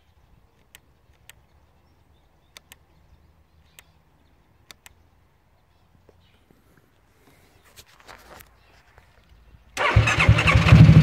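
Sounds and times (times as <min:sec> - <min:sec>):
sharp clicks: 0:00.5 - 0:01.5, 0:02.5 - 0:02.9, 0:03.6 - 0:04.0, 0:04.6 - 0:05.0.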